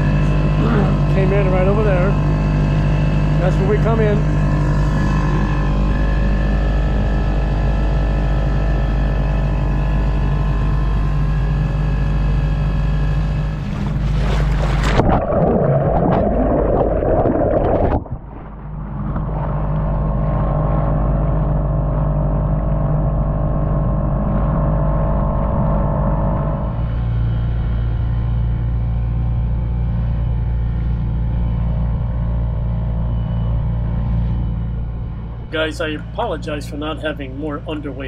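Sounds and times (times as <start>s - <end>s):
outboard motor running: 0.0s - 38.0s
water rushing: 13.8s - 19.6s.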